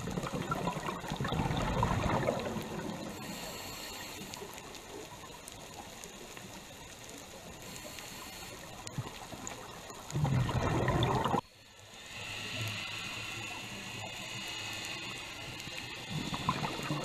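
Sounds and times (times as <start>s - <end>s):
regulator bubbles exhaled: 0.0s - 3.4s, 10.0s - 11.4s, 16.1s - 17.0s
underwater hiss: 0.0s - 17.0s
small clicks: 0.1s - 10.3s, 12.5s - 17.0s.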